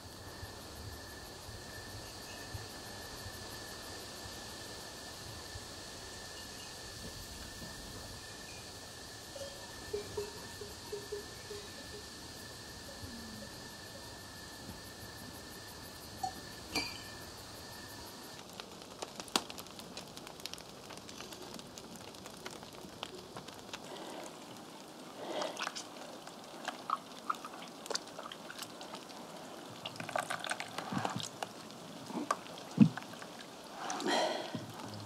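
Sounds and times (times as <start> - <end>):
liquid dripping and splashing: 25.3 - 34.2.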